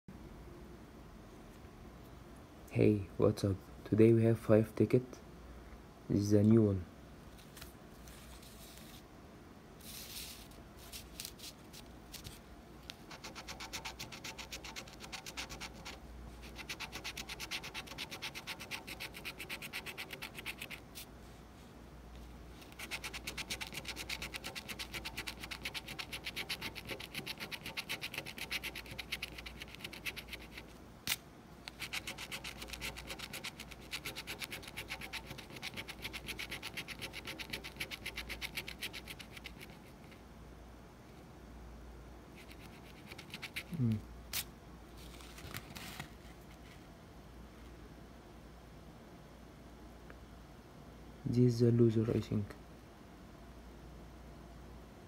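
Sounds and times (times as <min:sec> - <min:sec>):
coin scratching lottery ticket: 0:13.1 - 0:20.8, 0:22.6 - 0:30.7, 0:31.7 - 0:40.0, 0:42.4 - 0:43.7.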